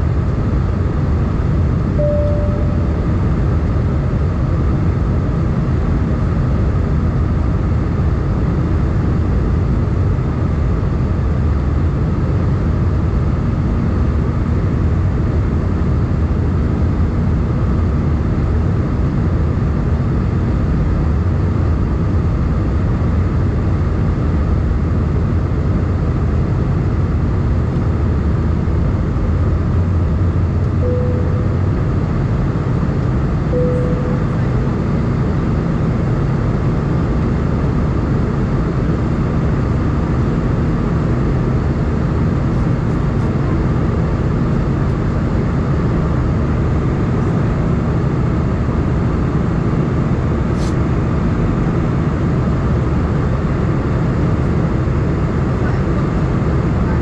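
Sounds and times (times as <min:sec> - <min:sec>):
airplane cabin drone: 0:00.0 - 0:57.0
short single tone: 0:01.9 - 0:03.7, 0:30.7 - 0:32.2, 0:33.5 - 0:35.4.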